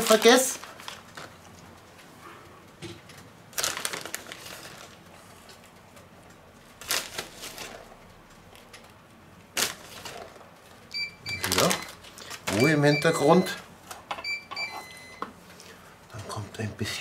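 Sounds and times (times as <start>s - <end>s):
plastic bag crinkling: 0.0s - 1.7s, 3.5s - 5.6s, 6.7s - 12.9s.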